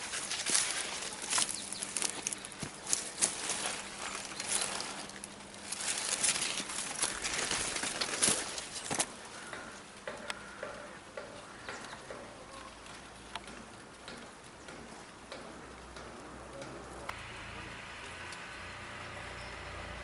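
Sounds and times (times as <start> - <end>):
dry corn leaves rustling: 0.0 - 11.6.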